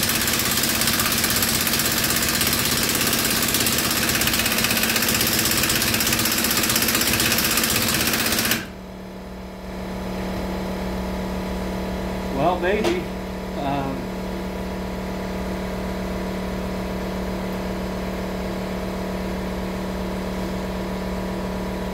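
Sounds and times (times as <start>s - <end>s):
impact wrench hammering: 0.0s - 8.7s.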